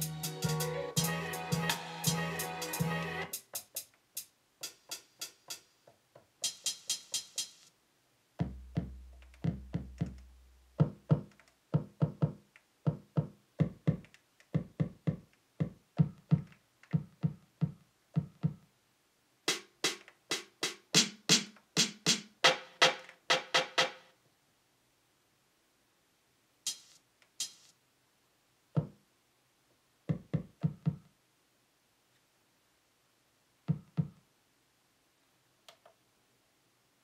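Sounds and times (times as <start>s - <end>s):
drum sample hits: 10.8s - 14.0s.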